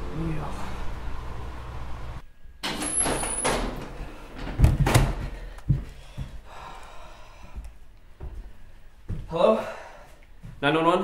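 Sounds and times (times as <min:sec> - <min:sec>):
wooden door banging: 0:02.6 - 0:05.4.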